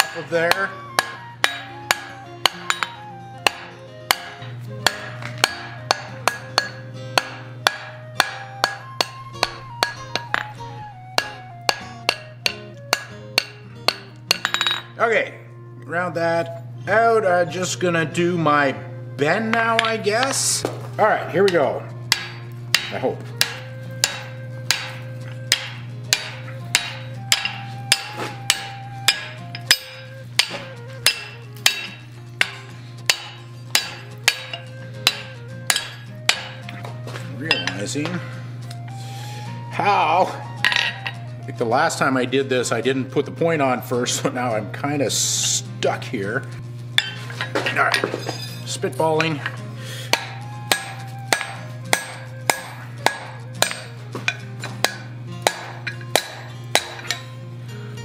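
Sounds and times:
hammer ringing on hot steel: 0.0s - 15.0s, 21.4s - 36.8s, 37.4s - 38.2s, 40.6s - 41.2s, 47.0s - 57.4s
steady low hum: 44.3s - 58.0s.

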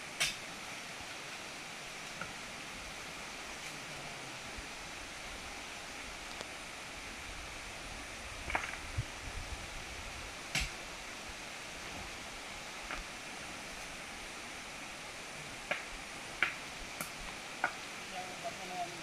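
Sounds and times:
steady hiss: 0.0s - 19.0s
stones knocking together: 8.5s - 8.8s.

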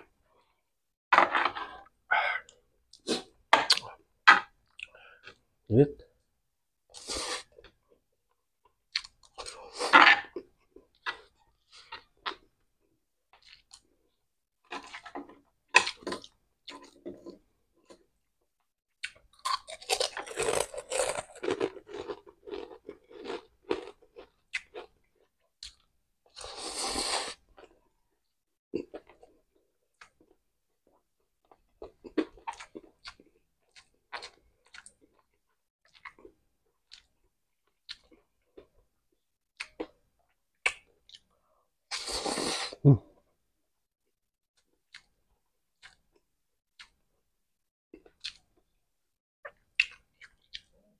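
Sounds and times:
chewing crispy food: 19.0s - 25.9s, 28.8s - 38.9s, 48.0s - 48.8s, 49.4s - 50.9s.

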